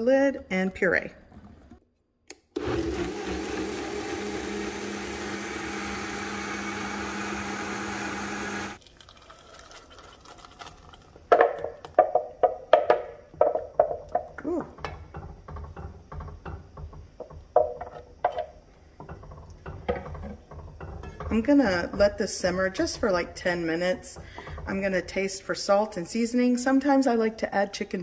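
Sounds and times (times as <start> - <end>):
blender motor running: 2.6 - 8.8.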